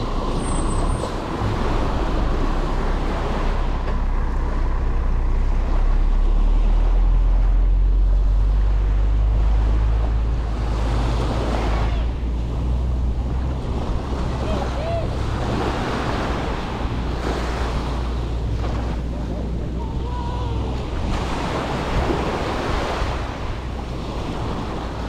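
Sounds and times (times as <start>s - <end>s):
truck diesel engine rumbling: 0.0s - 25.0s
small waves washing onto sand: 8.4s - 25.0s.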